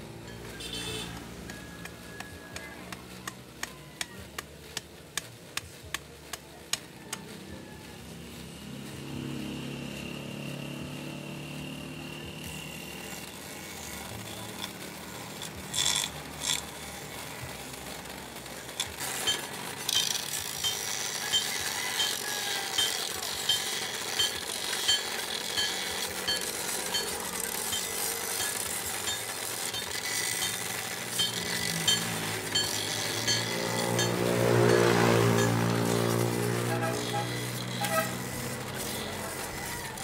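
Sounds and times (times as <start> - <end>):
bench grinder motor hum: 8.3 - 40.0
rasping grind on wood: 12.4 - 40.0.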